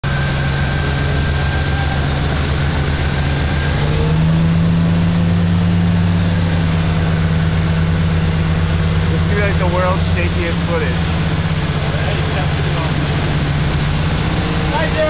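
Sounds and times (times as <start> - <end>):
motorboat engine: 0.0 - 15.0
wake water rushing: 0.0 - 15.0
wind: 0.0 - 15.0.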